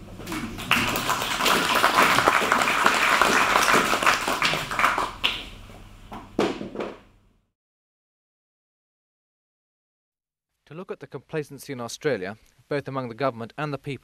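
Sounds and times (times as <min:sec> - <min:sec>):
audience clapping: 0:00.2 - 0:05.6.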